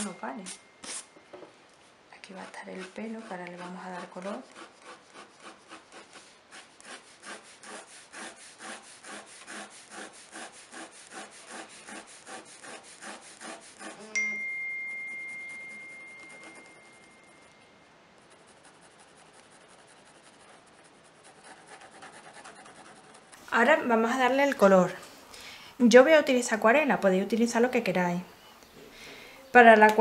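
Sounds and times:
pencil scratching on paper: 2.3s - 14.1s, 15.2s - 17.4s, 18.2s - 23.3s
clear ding: 14.1s - 17.8s.

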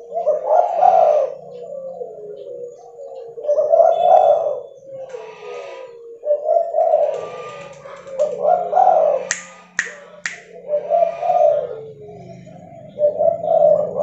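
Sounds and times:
dove cooing: 0.0s - 14.0s
sharp snaps: 9.2s - 10.6s.

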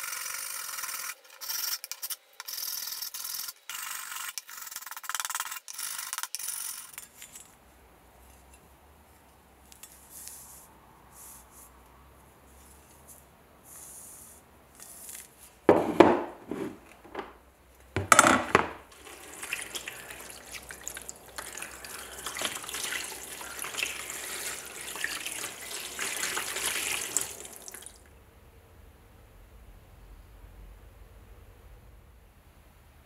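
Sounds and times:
loud knocks: 15.7s - 17.4s, 18.0s - 18.8s
liquid pouring into plastic tub: 18.9s - 28.1s.

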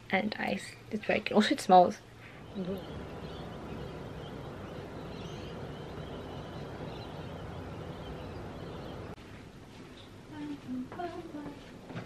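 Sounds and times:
low outdoor rumble: 2.1s - 9.2s
faint high chirps: 2.2s - 9.2s.

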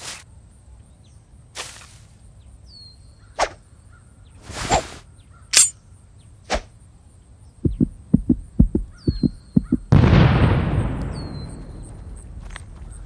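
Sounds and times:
pounding heartbeat thumps: 7.6s - 10.1s
loud booming hit: 9.9s - 11.9s.

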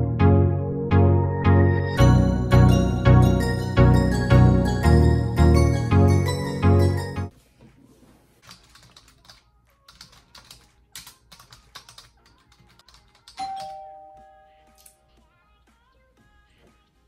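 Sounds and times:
doorbell two-note chime: 1.9s - 7.3s, 13.4s - 15.1s
typing on laptop keyboard: 8.4s - 13.8s.

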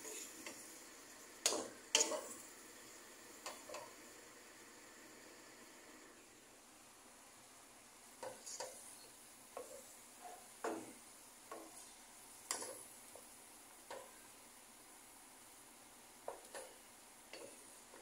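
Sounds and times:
spatula scraping frying pan: 0.0s - 0.7s, 1.4s - 2.4s
faint sizzle: 0.0s - 18.0s.

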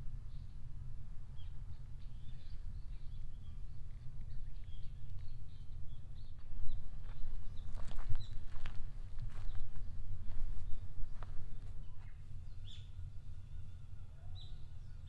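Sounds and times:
wind rumble on microphone: 0.0s - 15.0s
small birds chirping: 1.3s - 15.0s.

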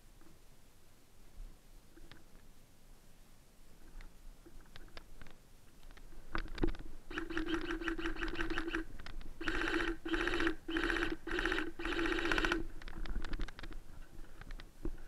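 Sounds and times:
airsoft gun firing bursts: 7.1s - 12.7s.

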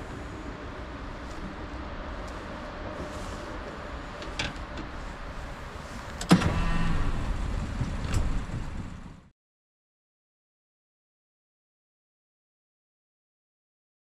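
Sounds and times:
mechanical whine with rattle: 0.0s - 9.3s
wind rumbling on microphone: 0.0s - 9.3s.

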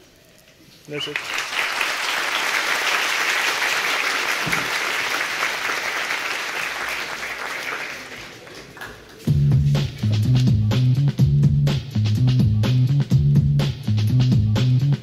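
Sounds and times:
large audience applauding: 1.0s - 9.3s.

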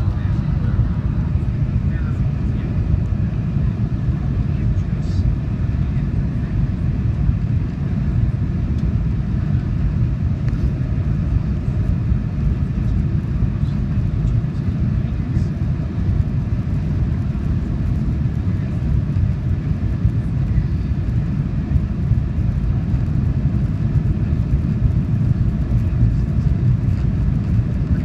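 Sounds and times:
airplane cabin low rumble: 0.0s - 28.0s.

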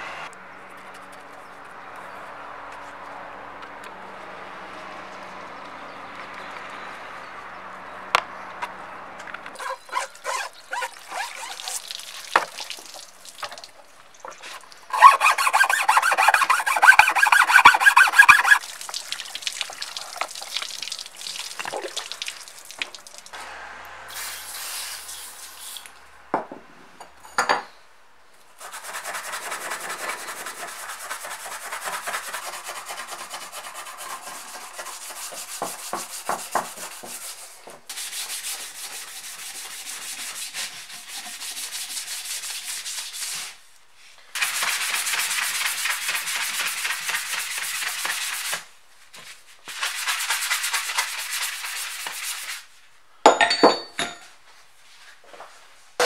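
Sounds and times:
brushing and scraping metal parts: 9.6s - 11.8s, 14.3s - 18.6s, 28.6s - 52.9s
scouring pad rubbing metal plate: 9.6s - 11.8s, 14.9s - 18.6s
fast scrubbing: 9.6s - 11.9s, 14.9s - 18.6s, 28.6s - 43.6s, 44.4s - 48.6s.

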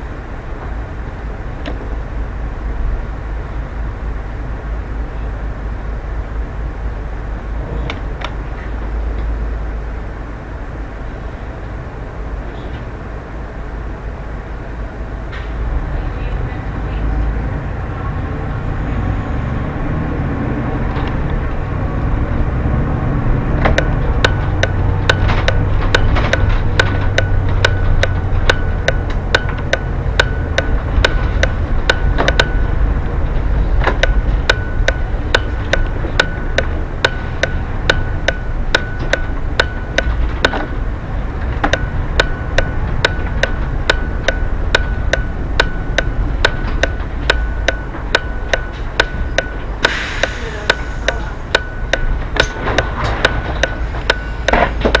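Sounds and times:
bus engine rumble: 0.0s - 55.0s
turn signal ticking: 20.3s - 55.0s
air hiss: 49.8s - 51.4s.

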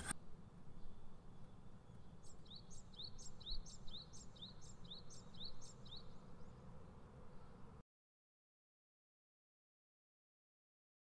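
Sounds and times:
bird chirping: 0.8s - 7.6s.

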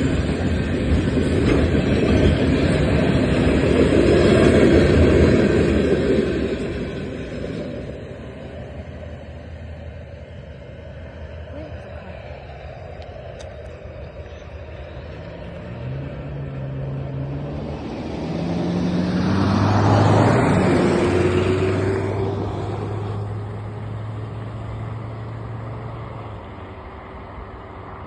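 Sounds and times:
vehicle driving past: 14.4s - 28.0s.

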